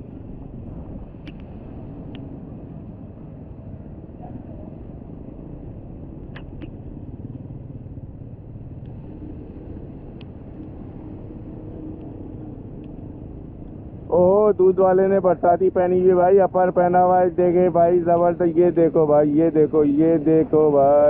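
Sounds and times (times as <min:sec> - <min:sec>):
motorcycle engine rumble: 0:00.0 - 0:15.5
road noise: 0:00.0 - 0:21.0
faint clicks: 0:06.3 - 0:06.8, 0:10.1 - 0:10.8, 0:12.8 - 0:13.8.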